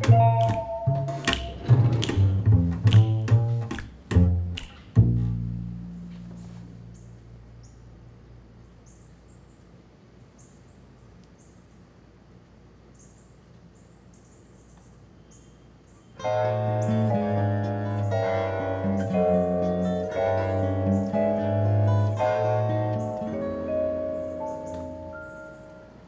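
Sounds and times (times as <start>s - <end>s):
plucked bass note: 0.0s - 6.3s, 16.2s - 25.2s
plucked-string music: 0.0s - 6.8s, 16.2s - 26.0s
small birds chirping: 6.6s - 26.0s.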